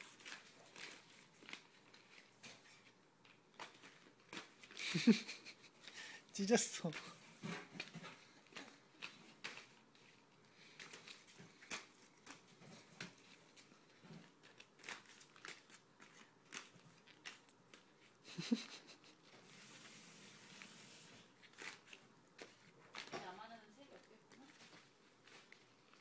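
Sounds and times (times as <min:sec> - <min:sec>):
paper crumpling and tearing: 0:00.0 - 0:02.9, 0:07.8 - 0:18.6, 0:19.4 - 0:23.1.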